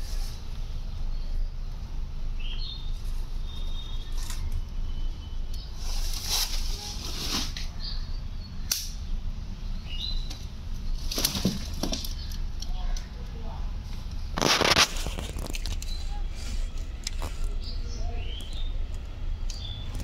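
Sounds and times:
rustling and handling noise: 5.6 - 7.8, 10.3 - 12.6, 13.8 - 17.7
sharp clicks: 8.7 - 9.0.

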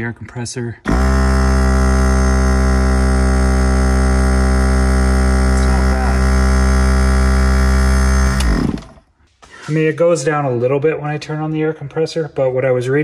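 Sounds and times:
air compressor motor hum: 0.9 - 9.1.

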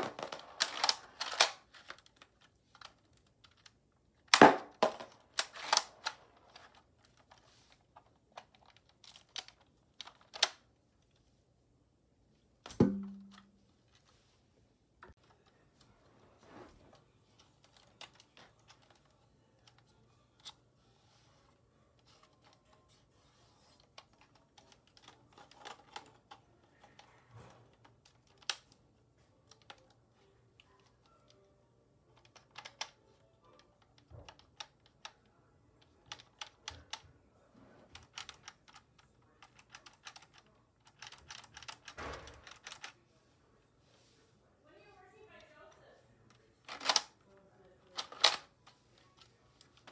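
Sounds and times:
plastic toy model clicking: 32.2 - 33.0, 38.0 - 43.0, 46.6 - 47.1.

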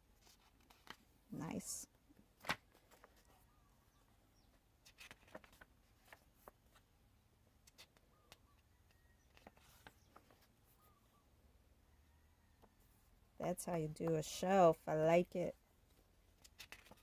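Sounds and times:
paper page turning: 0.2 - 1.0, 2.4 - 3.4, 4.8 - 6.8, 7.6 - 8.4, 9.3 - 10.5, 16.4 - 17.0.

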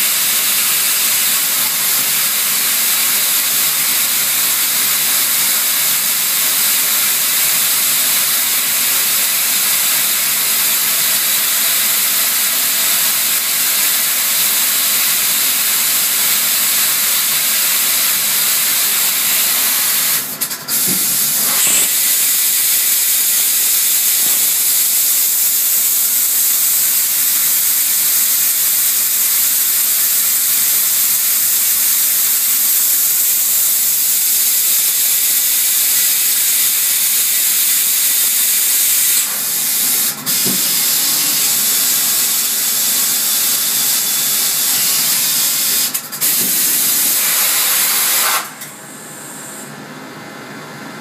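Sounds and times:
coolant spraying hiss: 0.0 - 49.8.

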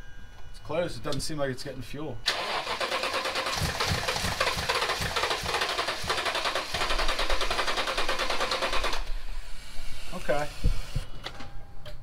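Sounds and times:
engine cranking on starter motor: 2.3 - 9.2.

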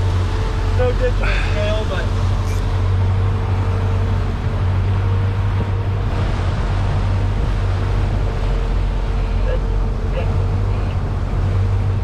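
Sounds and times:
outboard boat motor running: 0.0 - 12.0
rush of wind and water: 0.0 - 12.0.

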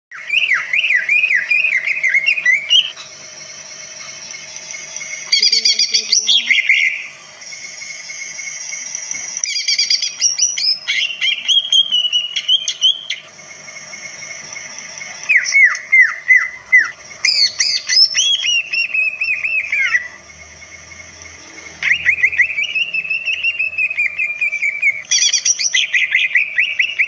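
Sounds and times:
bird singing whistled phrases: 0.2 - 3.0, 4.2 - 8.2, 9.4 - 13.3, 15.0 - 20.2, 21.8 - 27.0.

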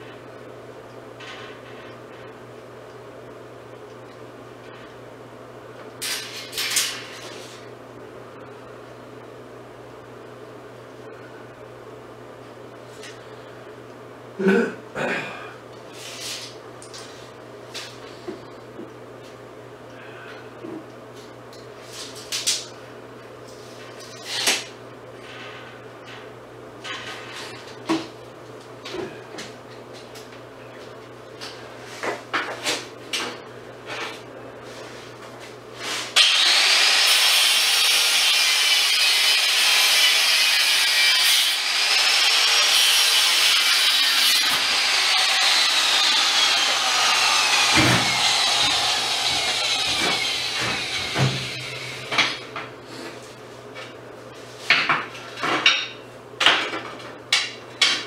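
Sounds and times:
angle grinder grinding steel: 36.2 - 52.4.

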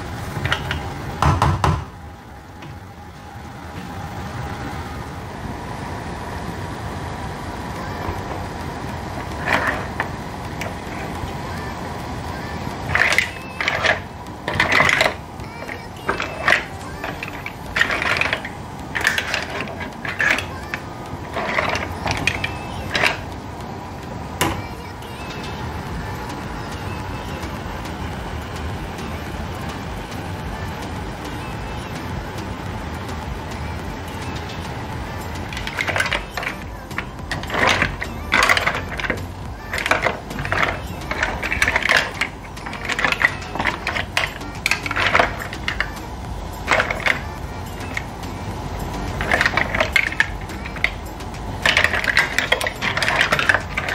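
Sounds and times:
mussel shells clattering in a pan: 8.0 - 11.4, 12.7 - 23.3, 35.4 - 48.2, 48.9 - 53.9.

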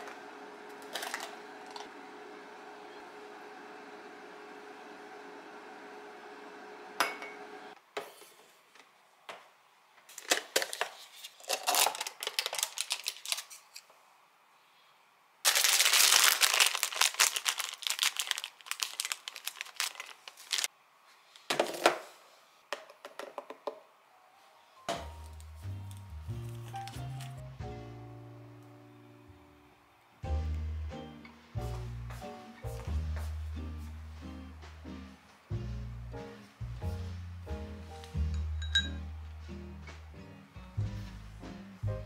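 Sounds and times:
packaging rustling: 10.1 - 13.8, 15.5 - 20.7, 25.2 - 27.4.

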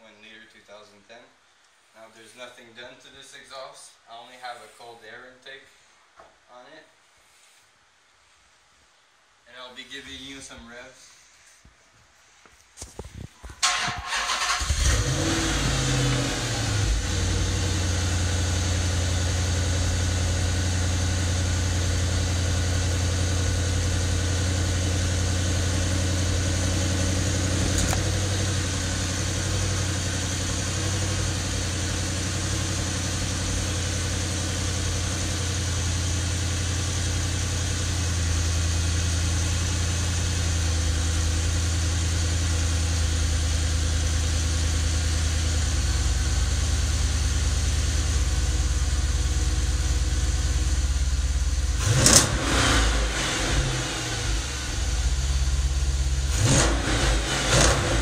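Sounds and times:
car engine idling: 13.6 - 58.0.

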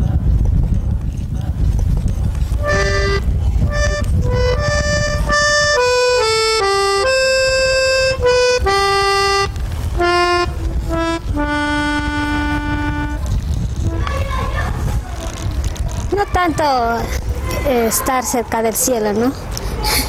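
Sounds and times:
low background rumble: 0.0 - 18.0
accordion melody: 2.6 - 14.1.

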